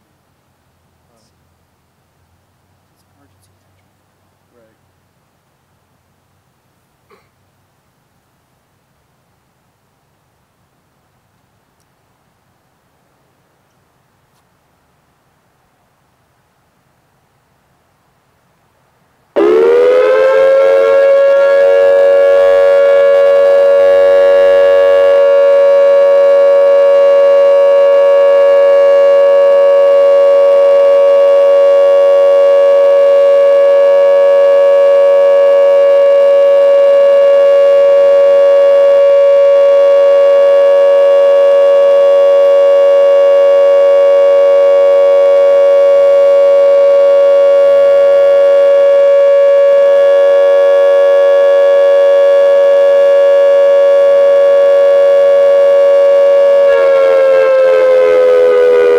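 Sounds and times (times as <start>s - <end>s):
dual-tone electronic siren: 19.4s - 58.9s.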